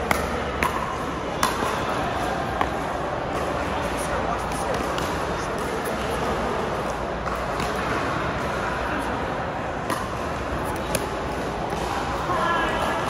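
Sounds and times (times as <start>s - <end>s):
hall background noise: 0.0s - 13.0s.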